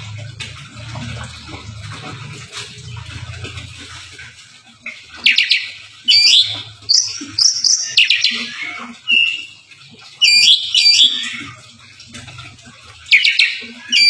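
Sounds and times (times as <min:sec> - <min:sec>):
bird singing whistled phrases: 0:05.3 - 0:08.5, 0:09.1 - 0:09.6, 0:10.2 - 0:11.3.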